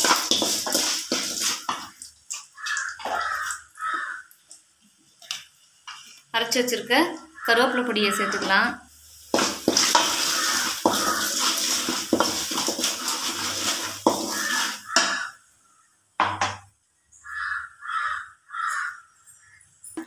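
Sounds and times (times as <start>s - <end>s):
metal tumbler knocking on pan: 0.0s - 1.9s, 9.4s - 15.3s, 16.2s - 16.7s
wooden spoon scraping pan: 0.0s - 1.9s, 8.1s - 15.3s
powder sizzling in hot oil: 0.0s - 15.4s.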